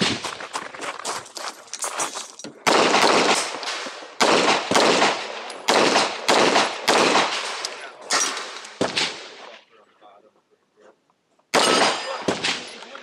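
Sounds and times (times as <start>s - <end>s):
handgun shots with echo: 11.6s - 12.9s.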